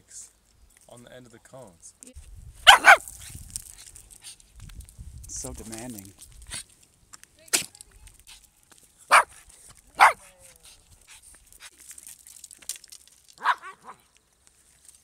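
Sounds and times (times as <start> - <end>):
small dog barking: 2.6 - 3.2, 9.1 - 10.8, 13.4 - 14.1.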